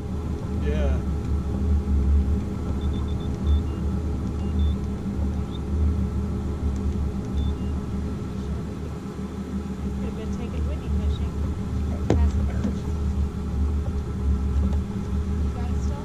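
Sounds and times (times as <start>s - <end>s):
steady low rumble: 0.0s - 16.0s
faint high-pitched beeps: 2.7s - 5.7s, 7.3s - 7.9s.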